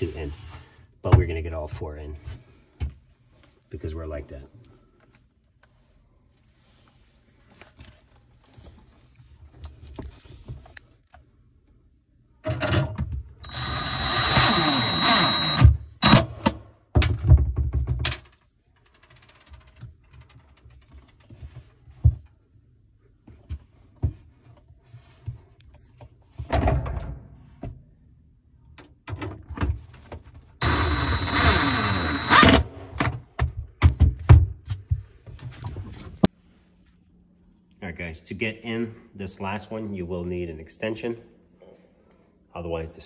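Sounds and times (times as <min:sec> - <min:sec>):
cordless drill driving screws: 0:13.4 - 0:16.3, 0:30.6 - 0:32.7.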